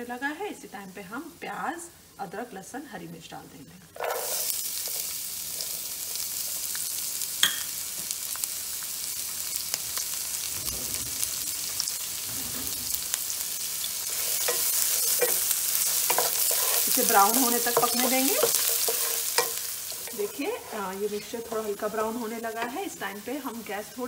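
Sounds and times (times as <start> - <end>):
vegetables sizzling in hot oil: 0.0 - 3.0, 3.9 - 24.0
wooden spatula stirring: 14.1 - 22.9.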